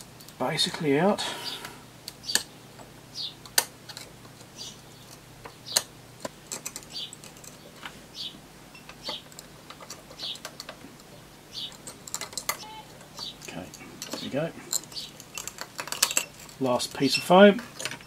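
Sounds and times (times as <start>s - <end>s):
small clicks: 8.8s - 16.6s.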